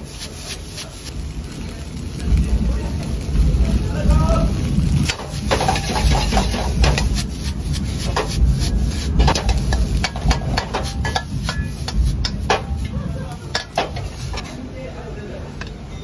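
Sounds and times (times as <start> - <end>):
steady low rumble: 0.0 - 14.8
metal ladle knocking on a wok: 9.2 - 12.8.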